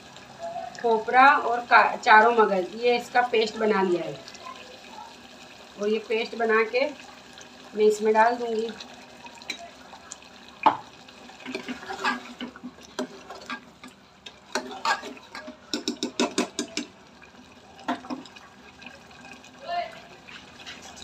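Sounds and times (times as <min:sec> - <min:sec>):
thick curry stirred: 0:11.3 - 0:17.0, 0:20.0 - 0:21.0.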